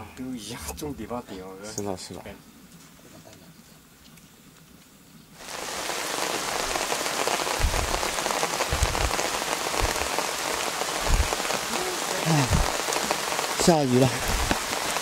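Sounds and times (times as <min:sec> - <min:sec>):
rain falling: 0:02.4 - 0:15.0
dull low thumps: 0:07.6 - 0:10.2, 0:11.0 - 0:11.5, 0:12.4 - 0:12.8, 0:14.2 - 0:14.7.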